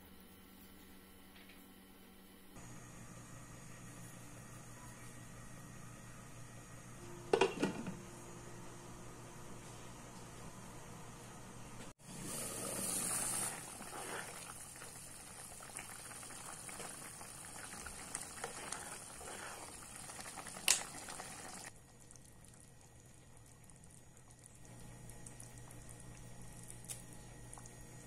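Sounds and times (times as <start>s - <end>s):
gravy bubbling in a pan: 12.0s - 28.0s.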